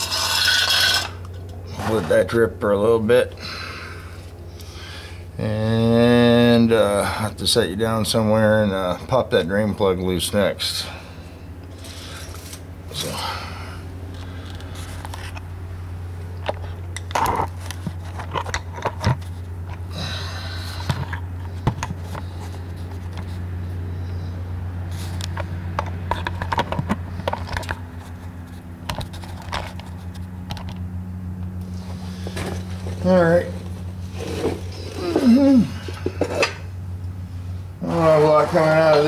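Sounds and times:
steady low hum: 0:00.0 - 0:39.0
metal tools clicking and clanking: 0:35.9 - 0:36.7.

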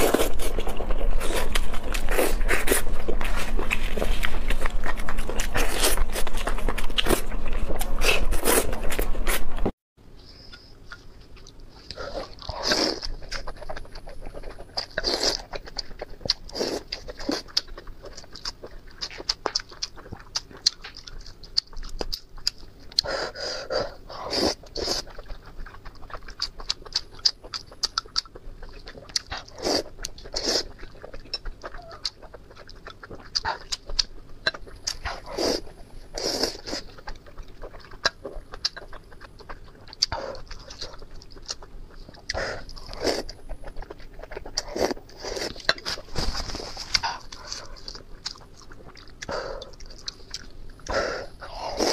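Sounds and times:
wet chewing: 0:00.0 - 0:09.4, 0:10.5 - 0:51.9
slurping: 0:34.5 - 0:38.1, 0:38.7 - 0:51.9.

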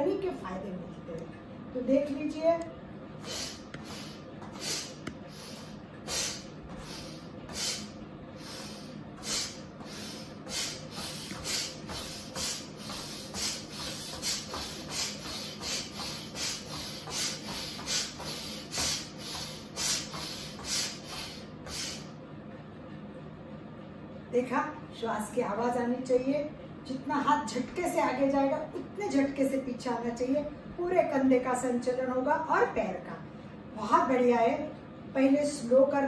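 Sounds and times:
person breathing forcefully: 0:03.2 - 0:22.2.

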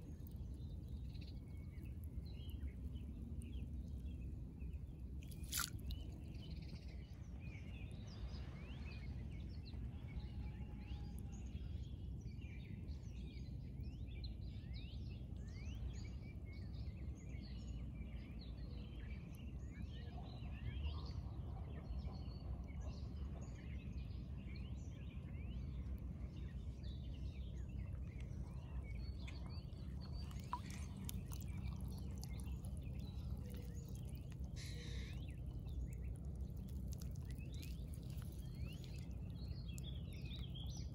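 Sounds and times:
small birds chirping: 0:00.0 - 0:08.8, 0:25.0 - 0:40.9
steady low rumble: 0:00.0 - 0:10.1, 0:24.6 - 0:40.9.

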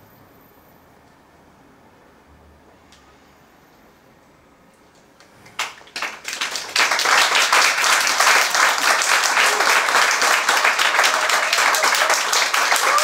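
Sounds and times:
audience applause: 0:05.5 - 0:13.0.

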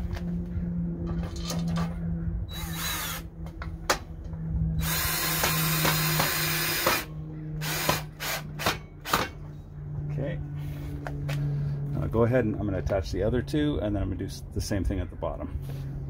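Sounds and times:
cordless drill driving screws: 0:02.5 - 0:03.2, 0:04.8 - 0:08.7.

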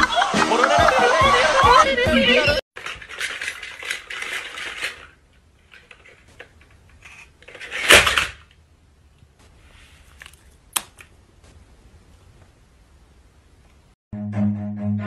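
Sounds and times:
plastic toy clattering on wooden floor: 0:02.8 - 0:08.6.

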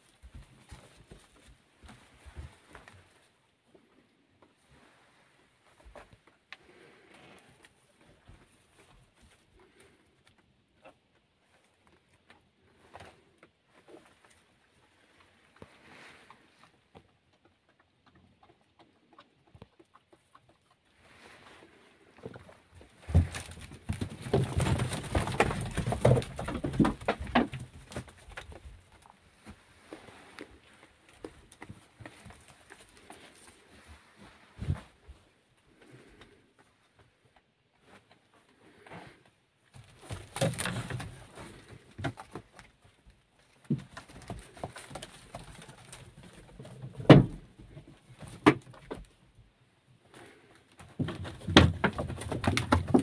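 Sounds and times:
straw rustling: 0:21.0 - 0:36.2, 0:38.6 - 0:42.7
knocks on wooden boards: 0:47.0 - 0:47.4.

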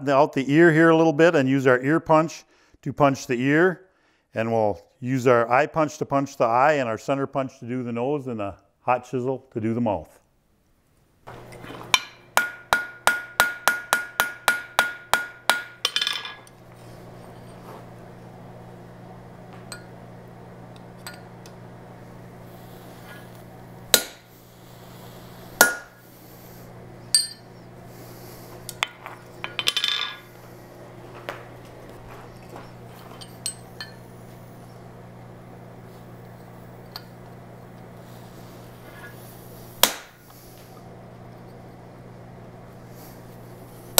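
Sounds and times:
low steady hum: 0:04.4 - 0:43.9
hammer ringing on anvil: 0:11.9 - 0:16.5, 0:25.6 - 0:25.9, 0:27.1 - 0:27.6.

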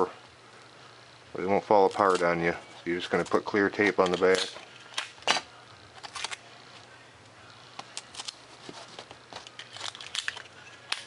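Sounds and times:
tape tearing and crackling: 0:03.2 - 0:06.5, 0:07.8 - 0:11.0.

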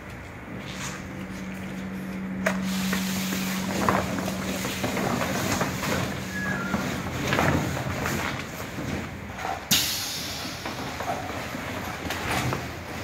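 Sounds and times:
steady low hum: 0:00.0 - 0:13.0
woven plastic fabric rustling: 0:02.7 - 0:09.6.

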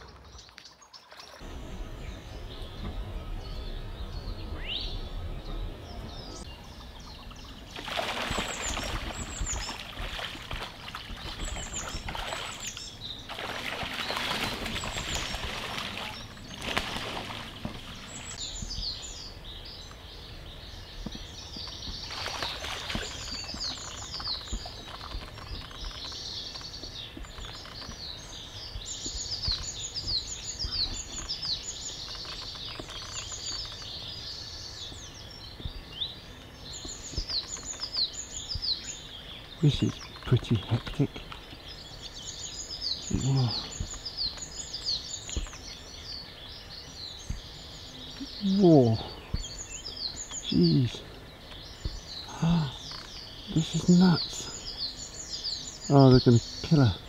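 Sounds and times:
songbirds chirping and singing: 0:00.0 - 0:57.0
ducks splashing in water: 0:07.2 - 0:18.3, 0:21.9 - 0:25.7.

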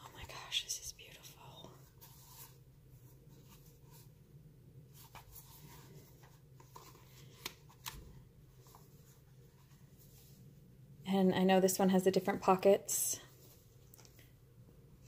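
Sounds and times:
notebook cover rustling: 0:04.9 - 0:10.4.

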